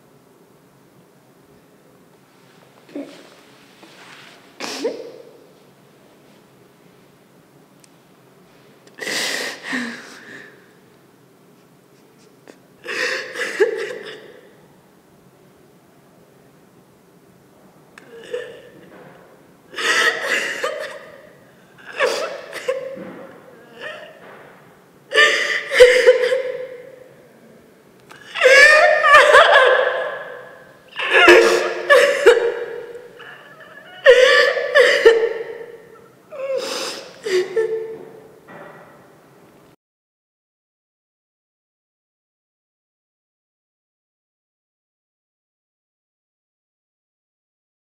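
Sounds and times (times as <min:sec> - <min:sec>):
woman laughing: 0:19.8 - 0:21.2, 0:25.1 - 0:26.9, 0:28.3 - 0:35.8, 0:37.2 - 0:38.0.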